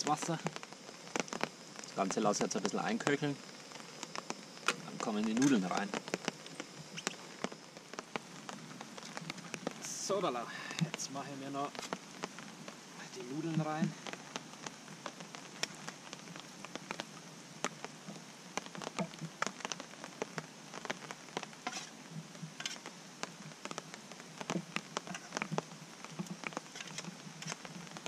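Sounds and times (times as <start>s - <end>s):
rain on a tarp: 0.0s - 28.0s.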